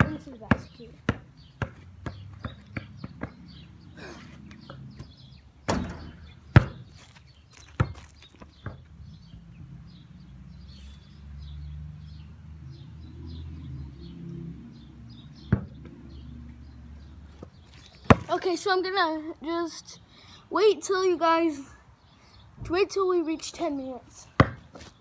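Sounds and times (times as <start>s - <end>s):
basketball thudding: 0.0s - 3.3s, 5.7s - 7.0s, 7.7s - 8.9s, 18.0s - 18.3s, 24.4s - 24.6s
birds chirping: 0.0s - 25.0s.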